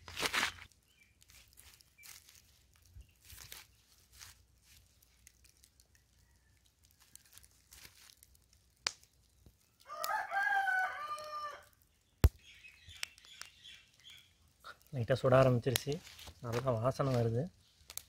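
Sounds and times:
rooster crowing: 9.8s - 11.8s.

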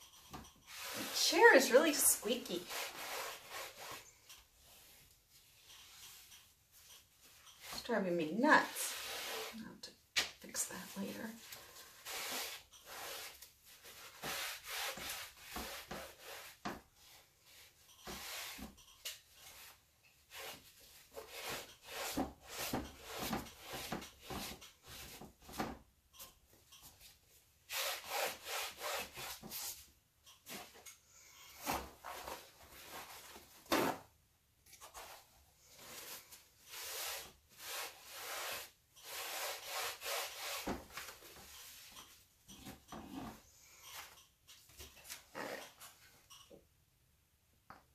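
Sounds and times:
paper towel rubbing canvas: 35.8s - 41.3s.

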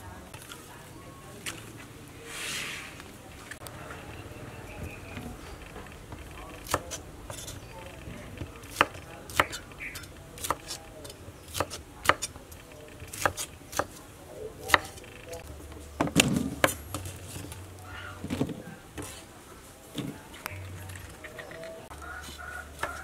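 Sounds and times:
knife chopping on wooden board: 10.4s - 12.3s, 22.8s - 23.0s.

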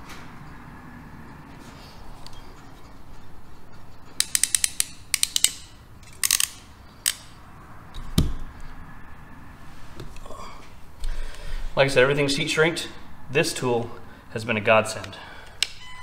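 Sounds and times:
crimping tool ratchet clicks: 4.2s - 7.3s.

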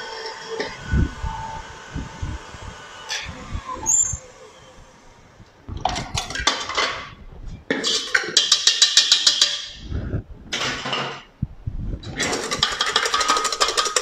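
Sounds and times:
wire whisk clattering in metal bowl: 12.2s - 14.0s.

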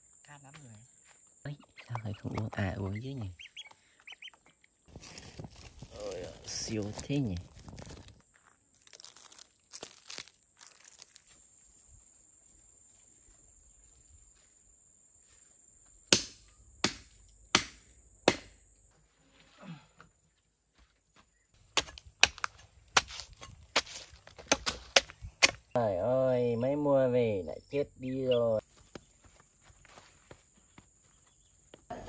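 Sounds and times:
chopping into tree trunk: 16.1s - 18.6s, 21.7s - 25.7s.

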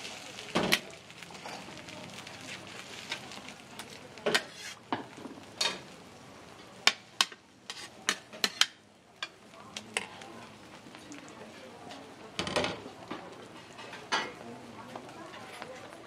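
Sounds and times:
low frying sizzle: 0.0s - 16.0s
metal spatula clacking on griddle: 6.8s - 10.2s.

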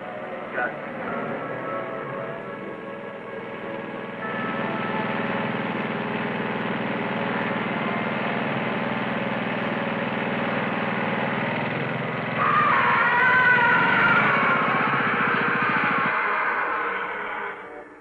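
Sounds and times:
wavering high tone: 0.0s - 6.4s, 12.4s - 18.0s
lawn mower engine running: 0.0s - 17.6s.

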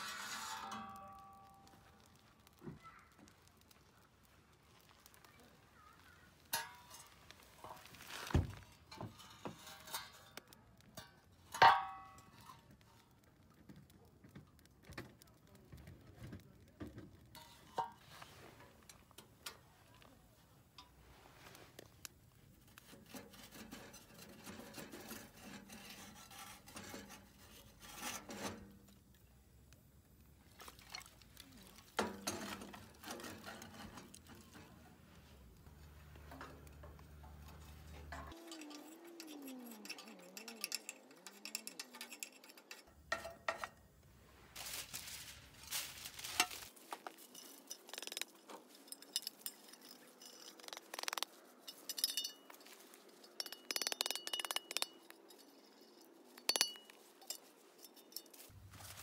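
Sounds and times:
ash rustling onto foil: 44.5s - 50.6s.

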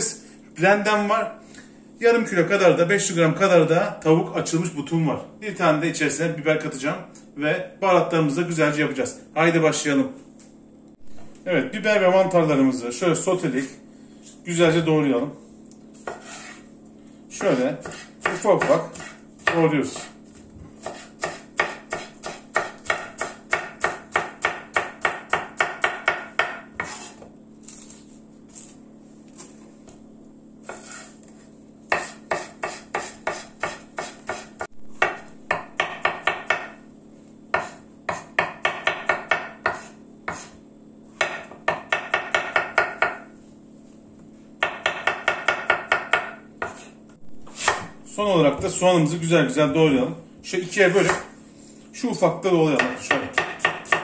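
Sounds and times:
knife chopping on wooden board: 16.0s - 16.6s, 17.4s - 27.3s, 30.6s - 36.8s, 37.5s - 40.6s, 41.2s - 43.3s, 44.6s - 48.0s, 50.7s - 51.4s, 52.7s - 54.0s.

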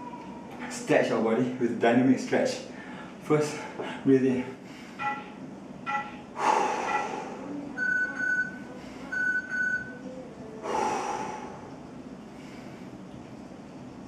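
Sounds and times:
man breathing deeply: 2.7s - 5.2s, 6.3s - 7.6s, 10.6s - 13.1s
steady high tones: 4.9s - 10.3s.

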